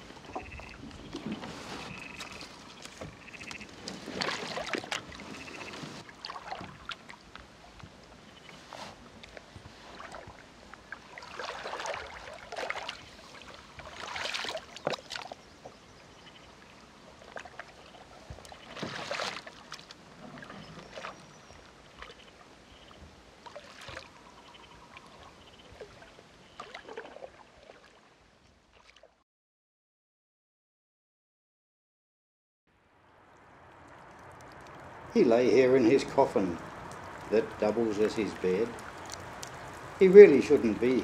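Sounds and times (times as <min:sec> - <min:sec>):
paddle splashing in water: 0:00.0 - 0:15.9, 0:16.5 - 0:29.2, 0:35.9 - 0:41.0
water dripping: 0:33.2 - 0:41.0.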